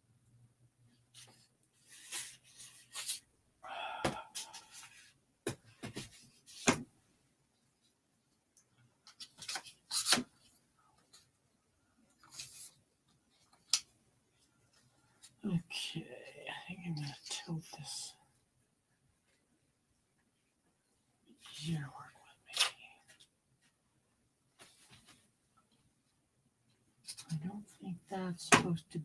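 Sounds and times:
scrape: 1.2s - 3.2s, 4.3s - 5.2s.

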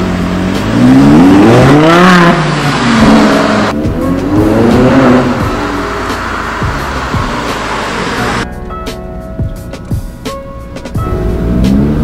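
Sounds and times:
car engine revving: 0.0s - 8.4s, 11.0s - 12.0s.

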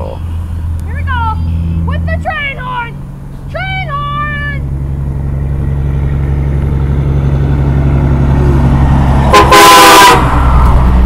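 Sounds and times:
truck rumble: 0.0s - 11.0s
truck train horn blast: 9.2s - 10.6s.

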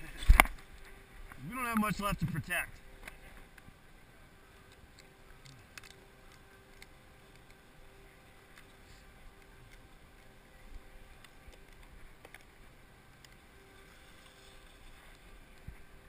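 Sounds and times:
small clicks: 4.7s - 7.6s.

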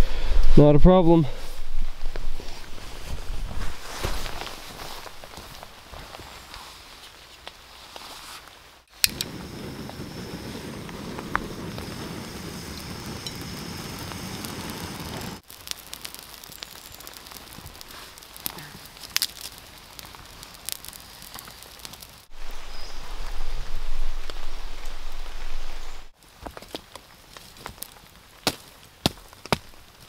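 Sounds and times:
campfire crackling and popping: 8.8s - 30.0s
rain on a tarp: 9.0s - 30.0s.

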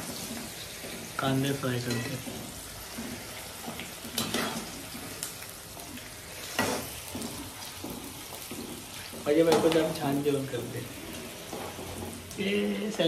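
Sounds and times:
onions sizzling in oil: 0.0s - 13.0s
metal spoon scraping pan: 1.6s - 5.0s, 6.4s - 10.0s.

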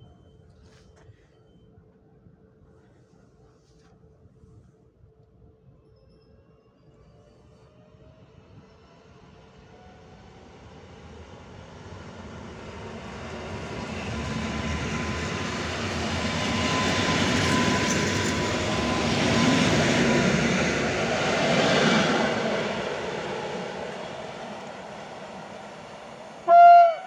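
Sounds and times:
wheels rumbling on rail: 9.3s - 27.0s.

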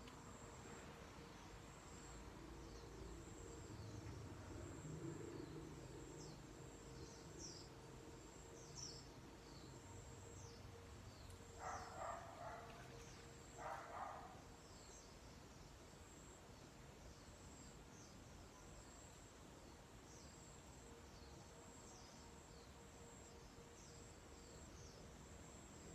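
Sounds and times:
insect drone: 0.0s - 25.9s
bird chirping: 10.4s - 15.1s.

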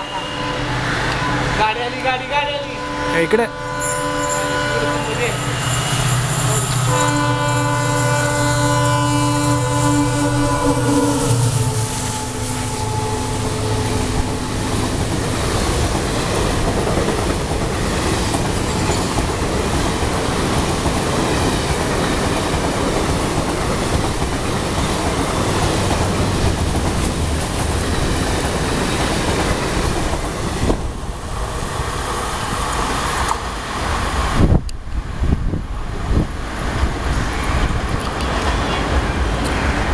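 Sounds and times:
train horn: 0.0s - 1.0s, 2.6s - 5.7s, 6.5s - 14.7s.

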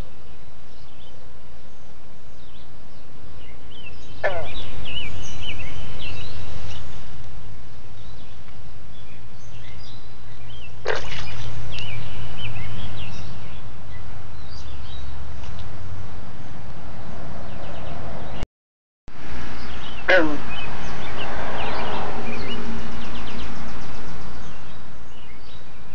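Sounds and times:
birds chirping: 0.0s - 18.4s, 19.2s - 25.9s
frogs calling: 3.6s - 7.2s, 9.5s - 15.2s, 19.6s - 25.4s.

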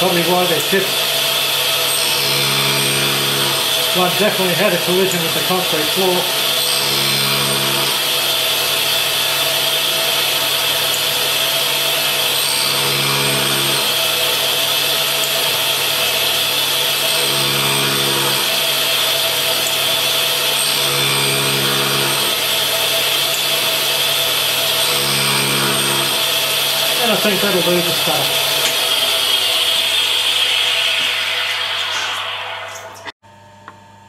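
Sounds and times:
grinding wheel on metal: 16.9s - 31.3s
low hum: 27.8s - 33.2s.

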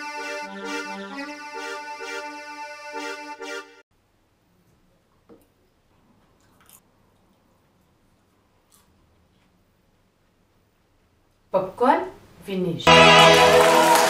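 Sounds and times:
keyboard chords: 0.0s - 3.8s, 12.9s - 14.0s.

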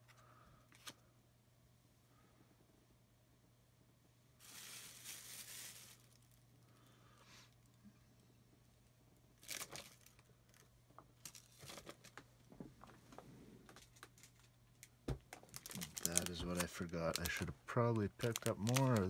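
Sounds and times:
cards and plastic sleeves rustling: 0.0s - 1.0s, 4.4s - 6.4s, 9.4s - 19.0s.

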